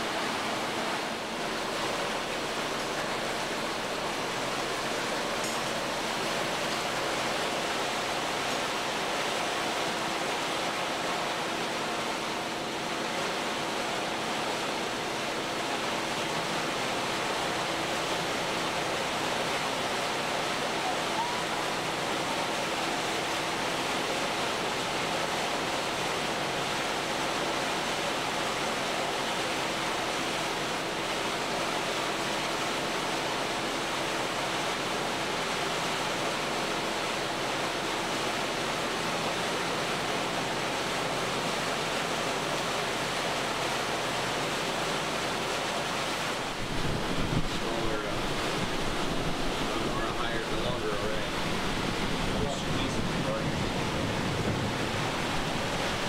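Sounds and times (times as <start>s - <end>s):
boat rushing underway: 0.0s - 56.0s
wind buffeting microphone: 46.5s - 49.8s, 51.4s - 56.0s.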